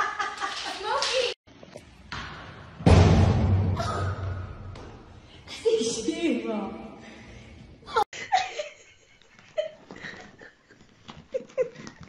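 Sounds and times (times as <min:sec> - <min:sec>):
person giggling: 0:07.9 - 0:12.0.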